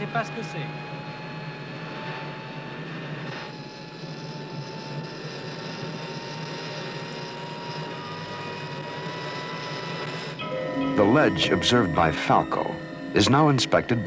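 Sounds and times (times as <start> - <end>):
electric motor hum: 0.0 - 14.0
whining tones: 0.0 - 14.0.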